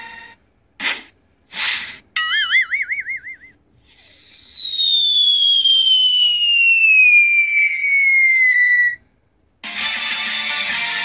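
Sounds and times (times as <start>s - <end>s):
wobbling spring effect: 2.2s - 3.2s
cartoon falling whistle: 2.2s - 9.0s.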